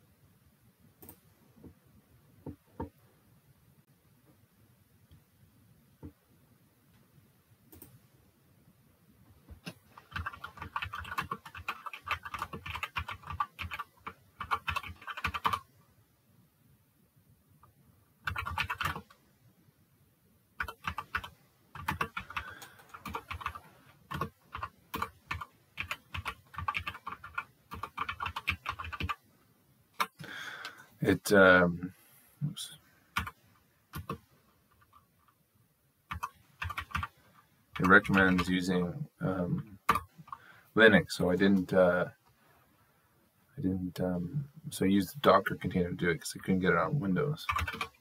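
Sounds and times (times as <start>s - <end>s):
computer keyboard typing: 9.6s - 15.7s, 18.2s - 19.1s, 20.6s - 29.2s, 33.1s - 35.4s, 36.1s - 38.5s, 39.8s - 40.4s, 47.5s - 48.0s.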